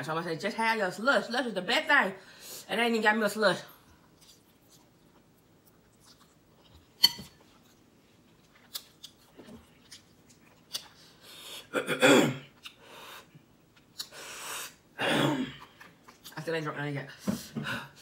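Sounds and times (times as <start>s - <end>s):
person coughing: 11.7s - 12.5s, 15.0s - 15.6s.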